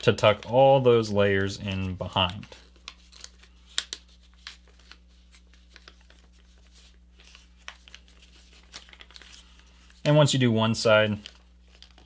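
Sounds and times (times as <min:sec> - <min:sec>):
paper rustling: 0:01.4 - 0:10.2, 0:10.9 - 0:12.0
paper crackles and clicks: 0:01.8 - 0:10.0, 0:11.0 - 0:12.0.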